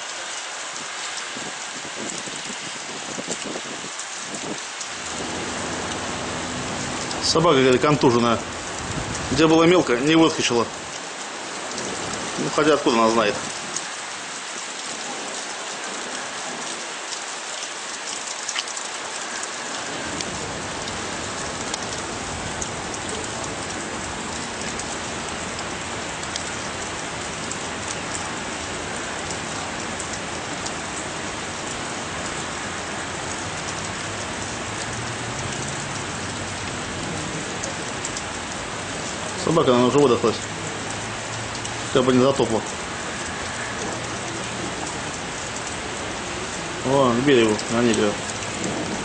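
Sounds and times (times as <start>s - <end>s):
heavy rain hissing: 0.0s - 49.0s
low rumble: 4.9s - 9.4s.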